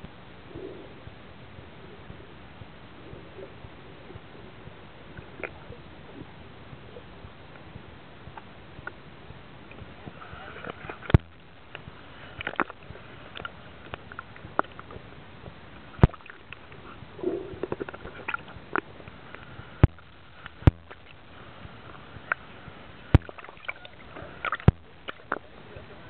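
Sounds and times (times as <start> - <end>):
low burst of sound: 0.0 - 26.0
sharp underwater clicks and knocks: 5.1 - 5.6, 9.7 - 25.5.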